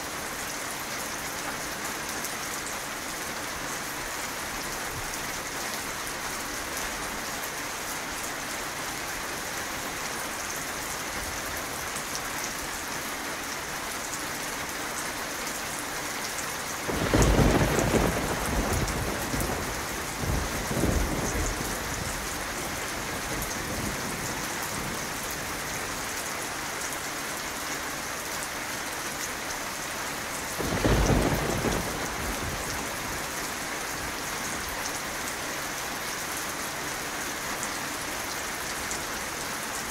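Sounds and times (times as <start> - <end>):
steady rain falling: 0.0 - 39.9
thunder clap and rumble: 16.9 - 25.7, 30.6 - 33.4.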